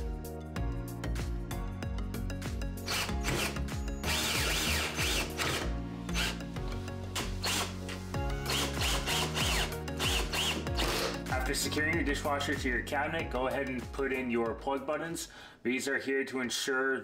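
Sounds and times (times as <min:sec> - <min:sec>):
background music: 0:00.0 - 0:16.1
cordless drill driving screws: 0:02.9 - 0:06.4, 0:07.2 - 0:11.2.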